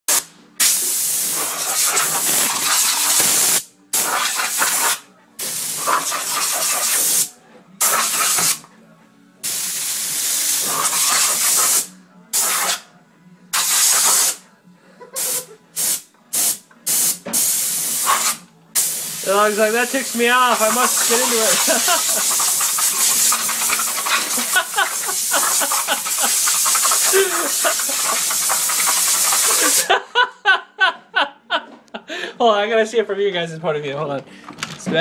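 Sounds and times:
air blow gun hissing: 0:00.1 - 0:08.6, 0:09.4 - 0:12.8, 0:15.2 - 0:29.9.

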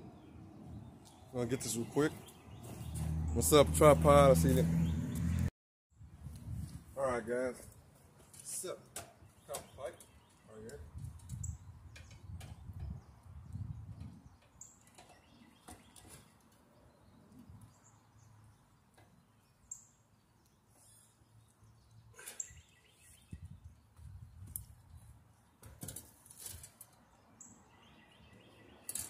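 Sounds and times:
small clicks and scrapes of pipe: 0:10.7 - 0:12.9, 0:25.6 - 0:27.0
high bird chirps: 0:22.0 - 0:24.4.

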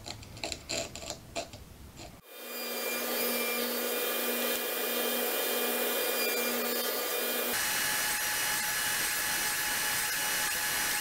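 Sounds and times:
knife scratching wood: 0:00.0 - 0:02.2
table saw running: 0:02.2 - 0:11.0.

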